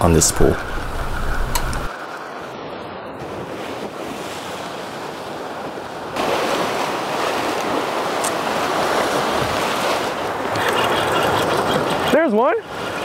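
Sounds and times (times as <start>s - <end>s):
surf breaking against rocks: 3.2s - 13.0s.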